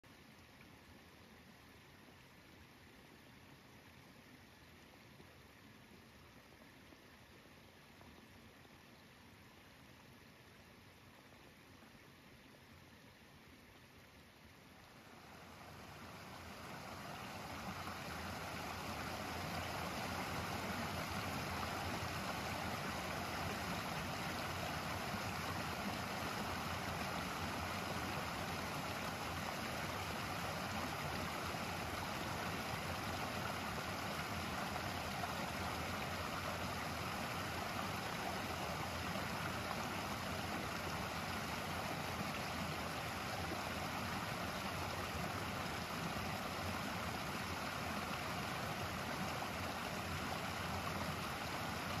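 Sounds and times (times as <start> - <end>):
water rushing over rocks: 14.9 - 52.0.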